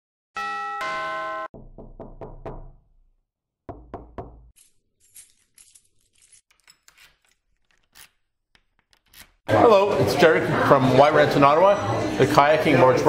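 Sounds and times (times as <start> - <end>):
knocking on a door: 1.5 - 2.9, 3.7 - 4.5.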